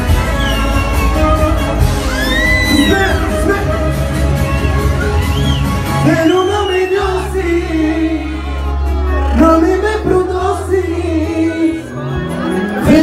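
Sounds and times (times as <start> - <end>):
deep bass line: 0.0 - 13.0
man singing into microphone: 6.0 - 8.6, 9.2 - 13.0.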